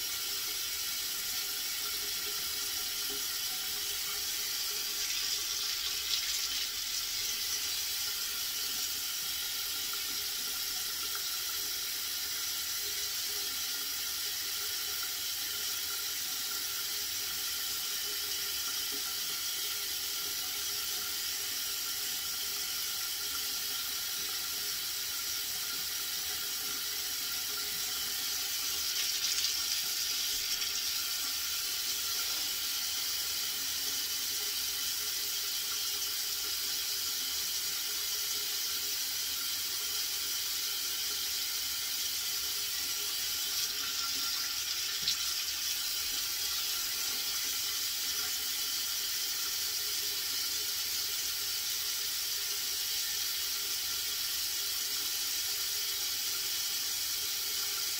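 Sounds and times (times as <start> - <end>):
water running from a tap: 0.0 - 57.9.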